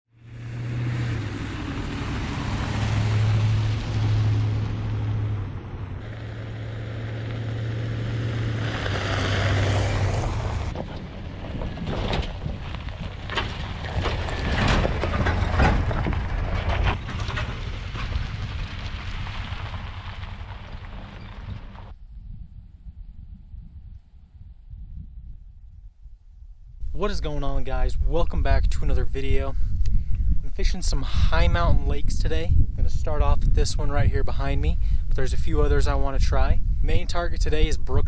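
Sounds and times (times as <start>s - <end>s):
pickup truck engine drone: 0.1s - 22.0s
gravel crackling under tyres: 0.2s - 22.1s, 26.8s - 38.0s
tyre and wind noise: 0.3s - 38.0s.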